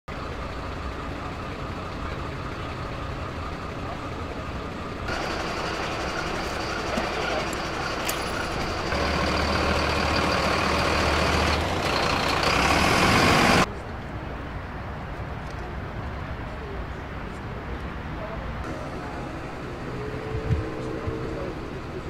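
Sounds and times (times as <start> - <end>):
diesel engine running: 0.1 - 13.7, 18.6 - 22.0
outdoor background noise: 0.1 - 22.0.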